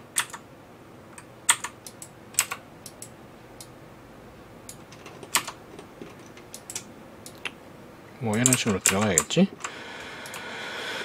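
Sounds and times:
keyboard and mouse clicks: 0.1 - 0.4, 1.2 - 3.7, 4.7 - 7.6, 8.3 - 10.5.

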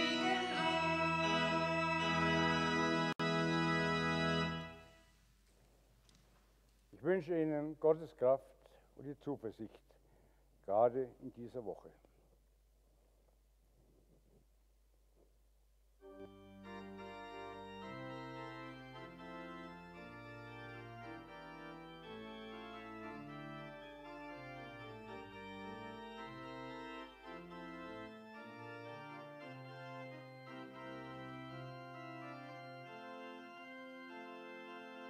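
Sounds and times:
church organ chords: 0.0 - 5.1, 16.0 - 35.0.

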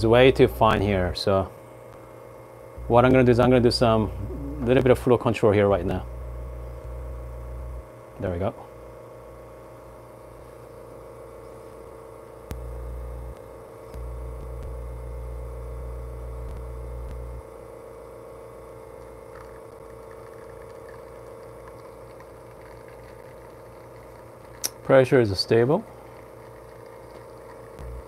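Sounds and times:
espresso machine pump humming: 0.0 - 28.0
deeper rumble: 2.8 - 7.9.

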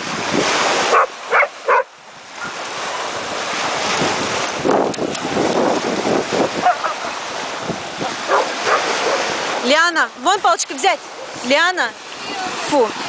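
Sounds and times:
waves washing onto shore: 0.0 - 13.0
wind buffeting microphone: 0.0 - 13.0
dog barking: 0.9 - 2.6, 6.6 - 7.2, 8.3 - 9.4.

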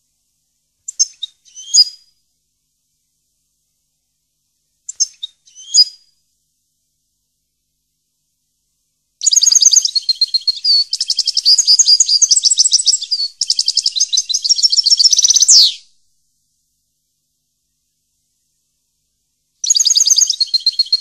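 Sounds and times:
songbird singing chirps and trills: 0.8 - 2.2, 4.7 - 6.2, 9.2 - 16.3, 19.4 - 21.0.

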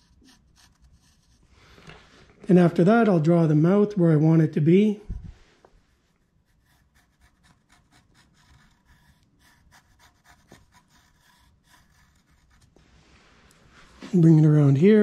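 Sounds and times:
faint pencil scratching on wood: 0.0 - 2.0, 5.6 - 15.0.

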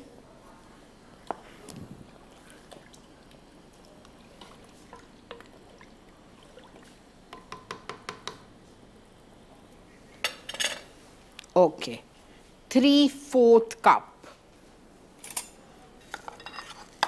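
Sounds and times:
wooden spoon stirring milk in pot: 1.2 - 8.5.

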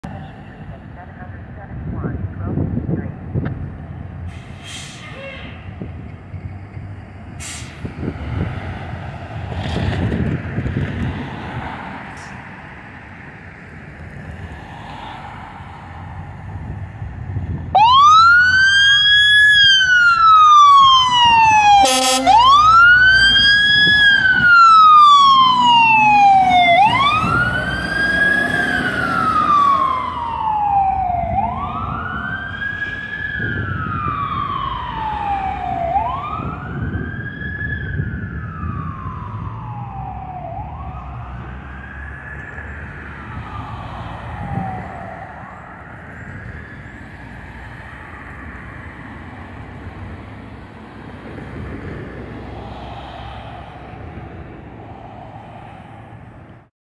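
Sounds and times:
siren wailing: 17.7 - 48.8
horn blast: 21.8 - 22.5.

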